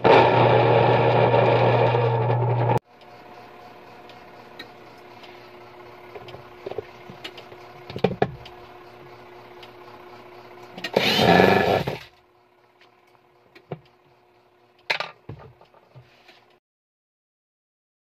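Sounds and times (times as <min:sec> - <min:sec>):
washing machine motor humming: 0:00.0 - 0:16.0
loud rasping burst: 0:11.0 - 0:12.0.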